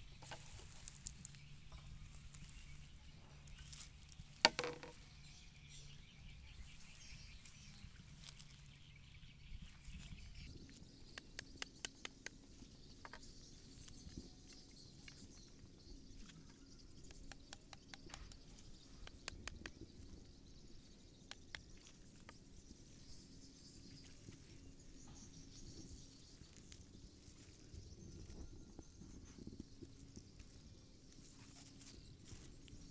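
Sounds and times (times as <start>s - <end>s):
bamboo pole clicking in grassy bank: 4.3s - 5.0s.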